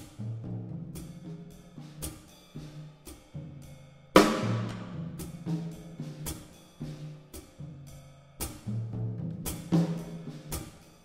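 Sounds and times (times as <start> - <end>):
tom and snare drum strokes: 0.0 - 11.0.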